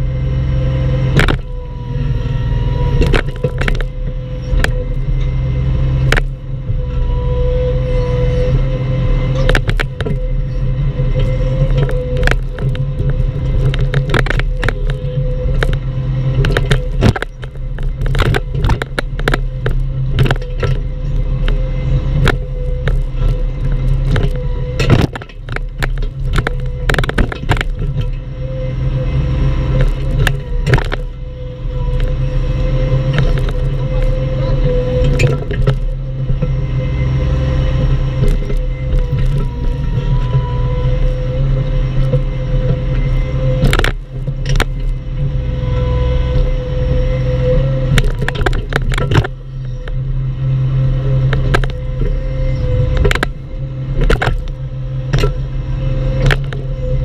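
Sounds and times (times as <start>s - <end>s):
diesel engine running: 0.0s - 57.0s
bucket knocking and scraping: 11.6s - 15.8s.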